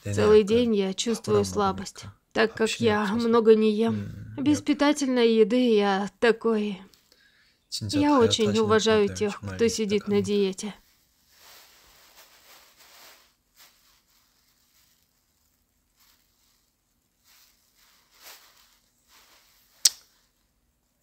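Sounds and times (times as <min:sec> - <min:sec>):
faint rustling and handling noises: 0:06.8 - 0:07.3, 0:08.0 - 0:21.0
sharp click: 0:19.8 - 0:20.1.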